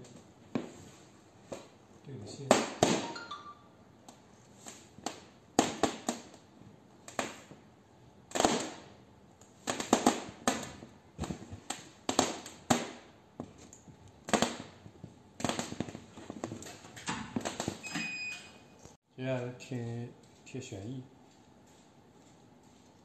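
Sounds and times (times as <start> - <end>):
foil balloon crinkling: 9.6 - 16.8.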